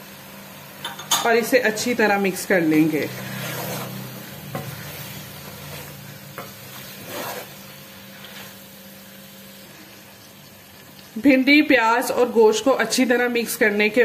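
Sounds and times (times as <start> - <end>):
hot oil sizzling: 0.0 - 14.0
wooden spoon stirring in pot: 2.7 - 11.3.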